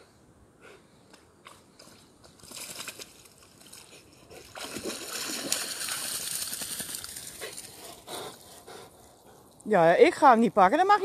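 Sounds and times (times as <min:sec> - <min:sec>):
dog splashing through water: 0:02.4 - 0:08.1.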